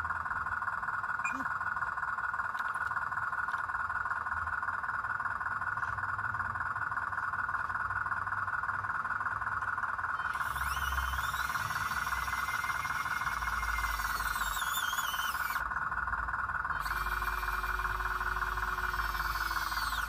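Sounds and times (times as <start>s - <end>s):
low steady motor whine: 0.0s - 20.0s
electric motor whining: 10.2s - 15.8s, 16.7s - 20.0s.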